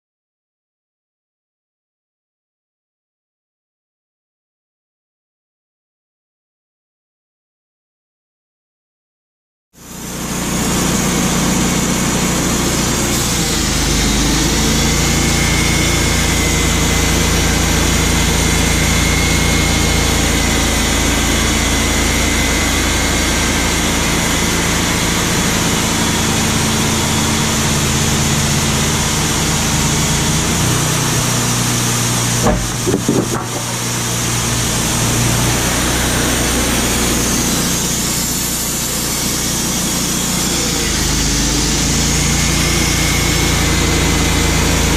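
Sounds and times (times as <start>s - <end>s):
band sawmill cutting wood: 9.8s - 44.9s
knocks: 32.4s - 34.2s.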